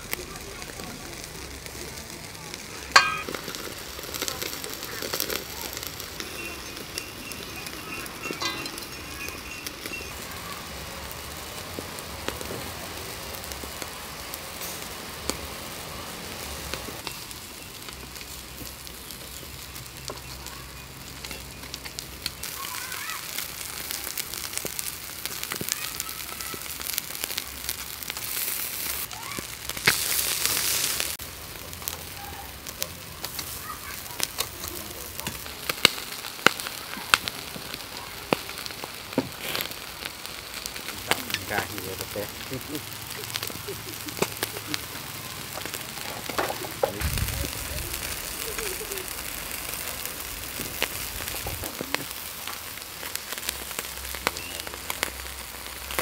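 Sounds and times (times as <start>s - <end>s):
fish sizzling on grill: 0.0s - 56.0s.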